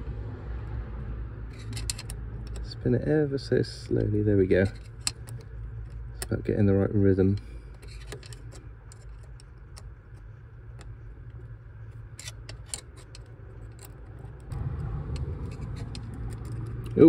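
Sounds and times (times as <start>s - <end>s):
low rumble: 0.0s - 4.2s, 13.2s - 17.0s.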